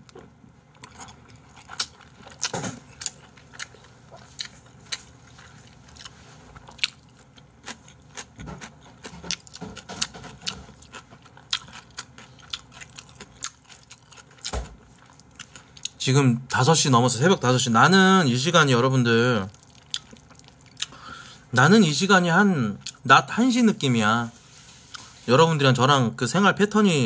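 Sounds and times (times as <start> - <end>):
chewing noodles close up: 0.0 - 16.0, 19.5 - 21.0
crunching kimchi: 0.0 - 21.2, 22.7 - 23.1.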